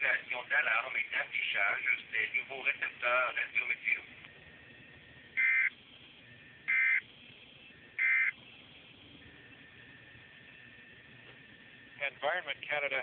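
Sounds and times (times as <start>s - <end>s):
weather radio digital data bursts: 0.0s - 13.0s.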